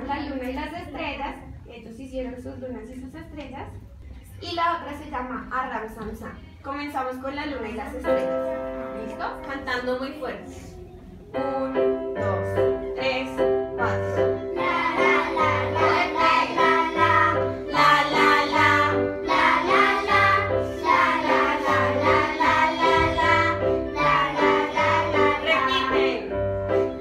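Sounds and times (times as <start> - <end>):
children singing in unison: 14.5 - 25.9.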